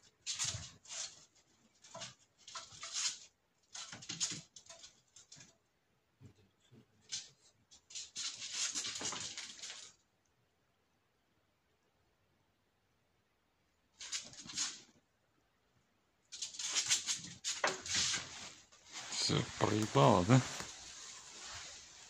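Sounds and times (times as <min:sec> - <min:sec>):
kitten paws skittering on floor: 0:16.3 - 0:22.0.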